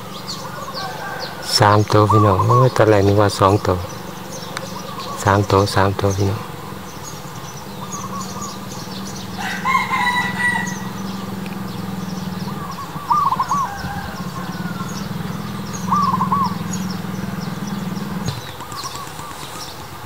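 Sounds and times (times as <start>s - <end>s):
steady low hum: 0.0s - 18.7s
looping bird calls: 0.0s - 20.0s
rooster crowing: 0.2s - 2.1s, 7.9s - 17.4s.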